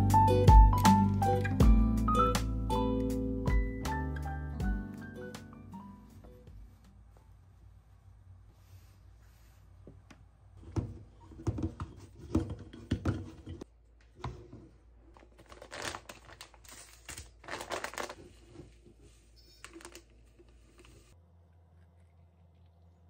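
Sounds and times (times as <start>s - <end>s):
plastic packaging crinkling: 15.2s - 21.1s.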